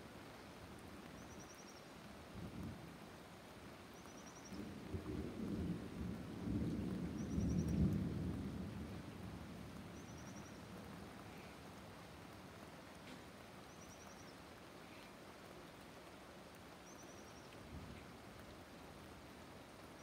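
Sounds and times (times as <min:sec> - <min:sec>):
light rain hiss: 0:00.0 - 0:20.0
thunder rumbling: 0:04.6 - 0:11.4.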